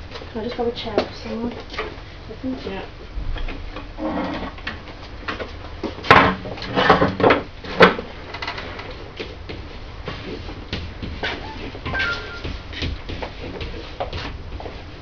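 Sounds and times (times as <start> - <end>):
sharp knocks and clatters: 4.7 - 8.6
low shuffling: 8.8 - 15.0.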